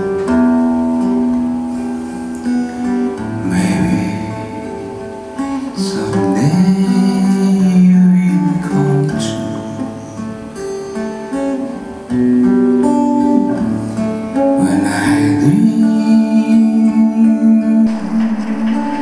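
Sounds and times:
acoustic guitar music: 0:00.0 - 0:19.0.

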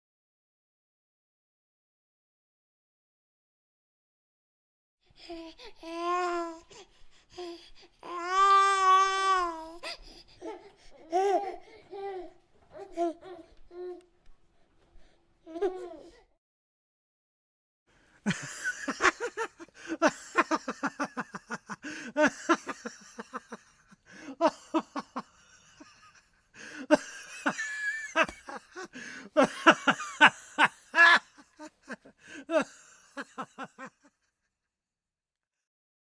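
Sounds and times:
person laughing: 0:18.3 - 0:34.1.

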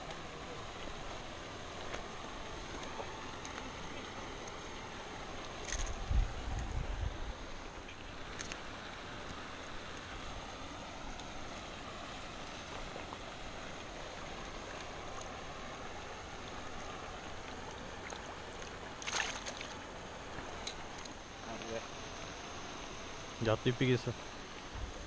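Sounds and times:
faint high whine: 0:00.0 - 0:25.0
water at pond edge: 0:00.0 - 0:25.0
wind: 0:00.0 - 0:25.0
fish splashing into water: 0:17.5 - 0:21.2.

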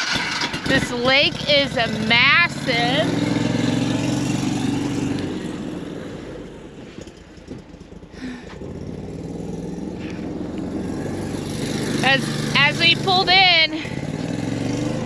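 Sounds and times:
amphibious vehicle engine running: 0:00.0 - 0:15.0.

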